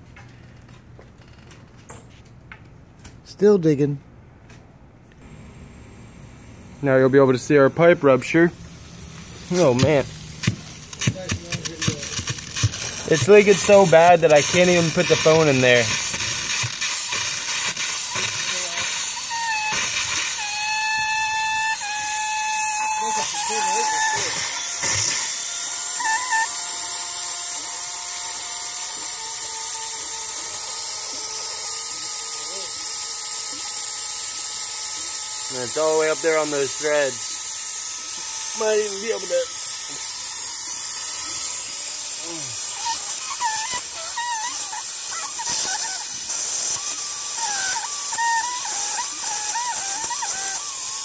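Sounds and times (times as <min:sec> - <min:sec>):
water spraying from pipe: 0:07.8 - 0:51.0
warbling whistle: 0:18.1 - 0:24.6, 0:25.2 - 0:27.1, 0:40.2 - 0:51.0.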